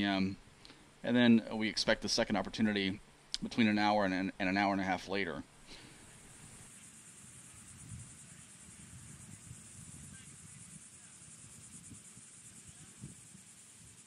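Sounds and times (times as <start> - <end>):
insects trilling: 5.7 - 14.0.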